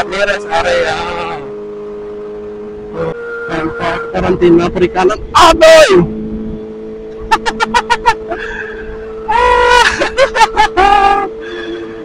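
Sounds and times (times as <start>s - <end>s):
motorcycle engine droning: 0.0s - 12.0s
person laughing: 7.2s - 11.3s.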